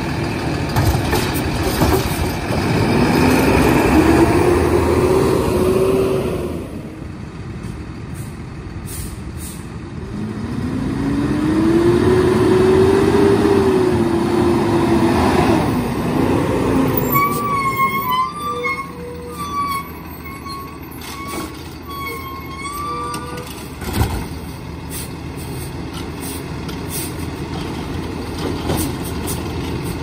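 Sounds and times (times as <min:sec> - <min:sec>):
garbage truck diesel engine revving: 0:02.4 - 0:07.0, 0:09.9 - 0:17.7.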